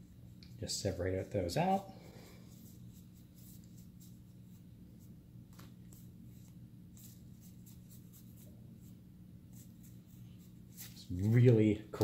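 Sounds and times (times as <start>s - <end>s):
steady low hum: 0.0s - 12.0s
cards flicking and rustling: 5.4s - 8.5s.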